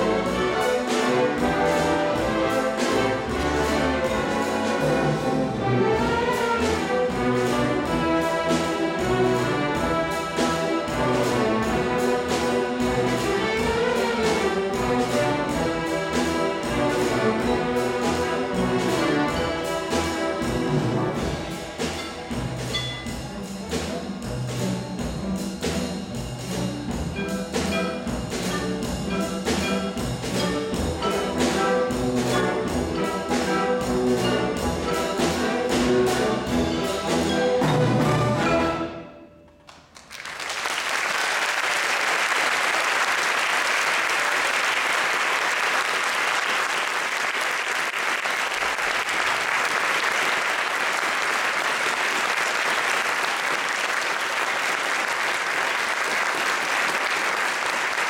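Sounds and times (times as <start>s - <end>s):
orchestra with brass playing: 0.0s - 39.6s, 41.2s - 58.0s
audience applause: 39.7s - 58.0s.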